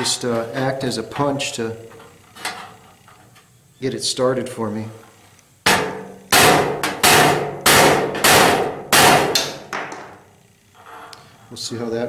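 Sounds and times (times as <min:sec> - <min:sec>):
hammer tapping on sheet metal: 0:05.7 - 0:10.1.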